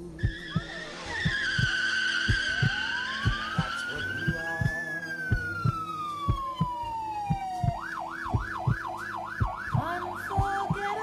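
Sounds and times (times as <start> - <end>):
emergency siren wailing: 0.0 - 11.0
paired low thuds: 0.0 - 11.0
high squeal: 0.2 - 6.2.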